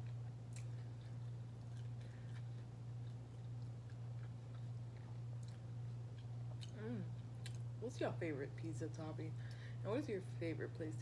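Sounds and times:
person chewing food: 0.0s - 7.8s
steady low hum: 0.0s - 11.0s.

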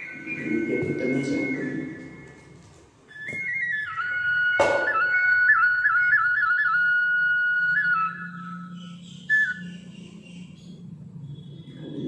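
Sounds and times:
wind instrument melody: 0.0s - 9.9s.

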